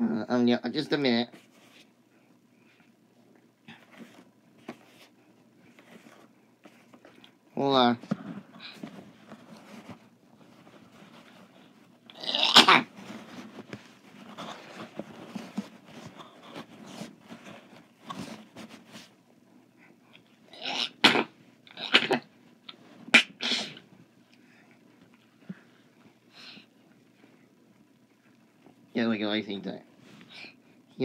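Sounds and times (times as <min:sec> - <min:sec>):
person sneezing: 0:12.2 - 0:13.0, 0:20.6 - 0:22.2, 0:23.1 - 0:23.8.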